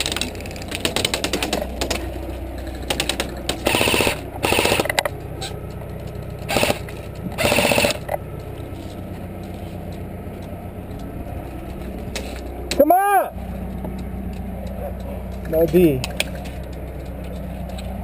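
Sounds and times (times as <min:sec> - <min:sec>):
airsoft rifle full-auto bursts: 0:03.6 - 0:05.0, 0:06.5 - 0:08.1.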